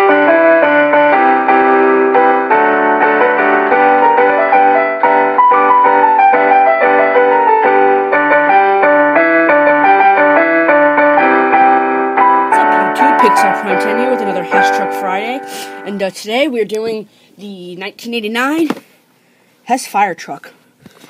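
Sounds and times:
keyboard tune: 0.0s - 16.6s.

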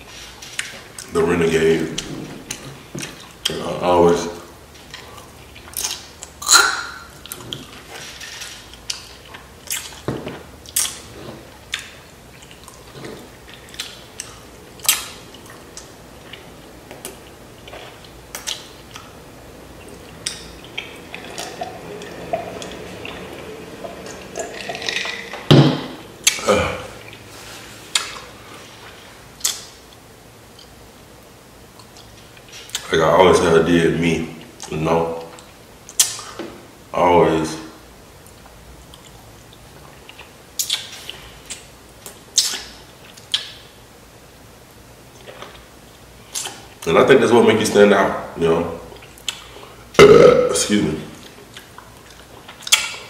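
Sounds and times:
wet mouth smacks and clicks: 5.6s - 7.5s, 18.3s - 19.1s, 29.4s - 29.7s, 35.9s - 36.4s, 40.1s - 43.6s
close chewing: 8.7s - 19.2s.

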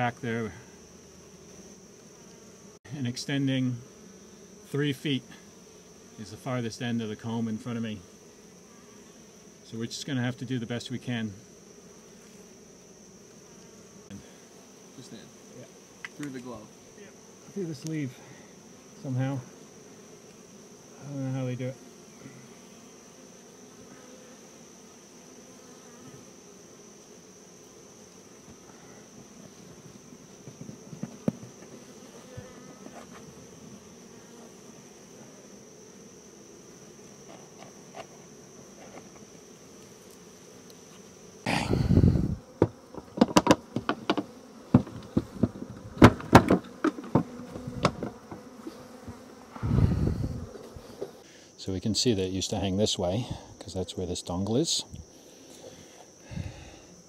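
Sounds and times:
bees buzzing: 0.0s - 57.0s
wooden knocks and clunks: 42.6s - 48.4s.

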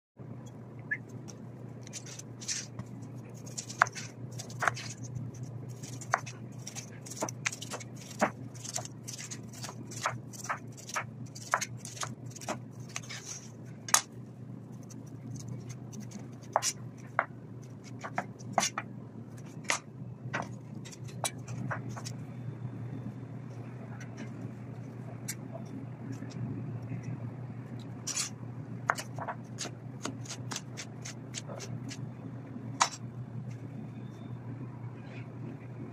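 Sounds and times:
steady low hum: 0.2s - 35.9s
knife rasping through pineapple skin: 1.8s - 13.5s, 28.1s - 32.0s.

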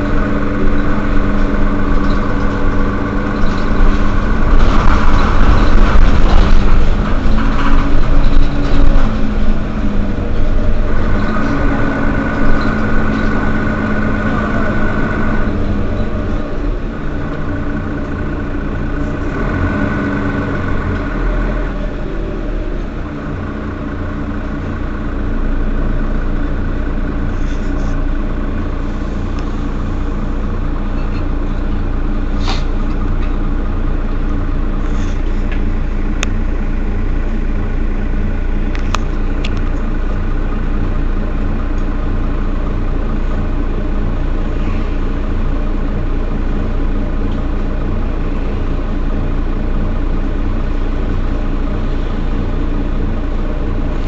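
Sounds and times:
bus diesel engine idling: 0.0s - 54.0s.

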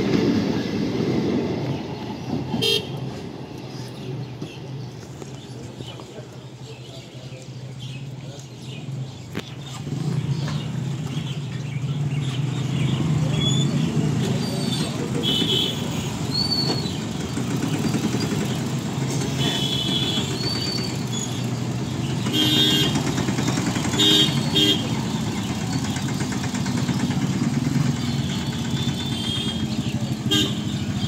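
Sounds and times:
people's voices: 0.0s - 11.6s, 12.6s - 20.8s
vehicle horn toots: 2.6s - 3.0s, 15.2s - 16.0s, 19.4s - 20.6s, 22.2s - 23.1s, 24.0s - 25.0s, 28.1s - 31.0s
tractor engine running: 14.0s - 31.0s
motorcycle engine running: 16.8s - 31.0s.

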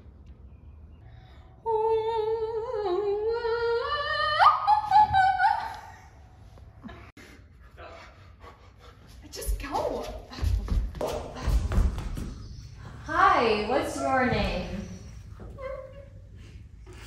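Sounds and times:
girl singing with vibrato: 1.7s - 5.8s.

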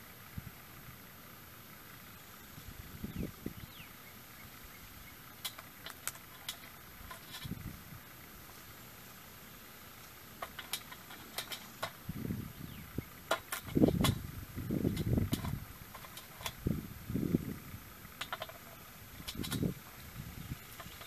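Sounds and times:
muffled thumps and rumbles: 5.9s - 7.8s, 10.4s - 17.6s.

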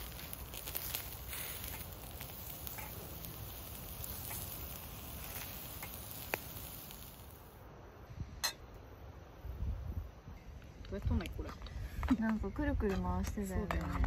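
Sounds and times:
food sizzling on charcoal grill: 0.0s - 7.6s.

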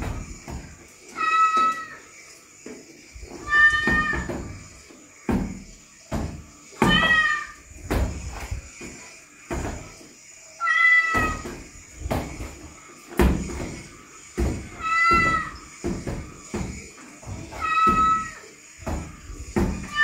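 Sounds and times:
cat meowing: 1.2s - 2.0s, 3.4s - 4.3s, 6.8s - 7.6s, 10.6s - 11.4s, 14.8s - 15.5s, 17.6s - 18.4s.

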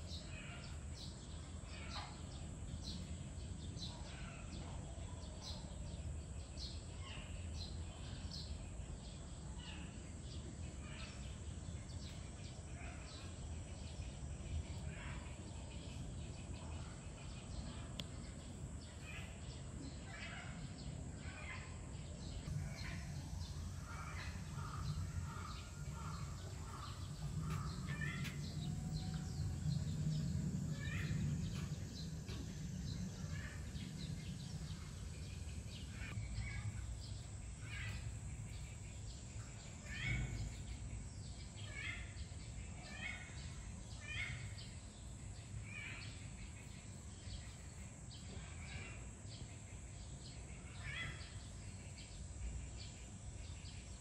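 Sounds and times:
birds chirping: 0.0s - 54.0s
low background rumble: 13.4s - 43.9s.

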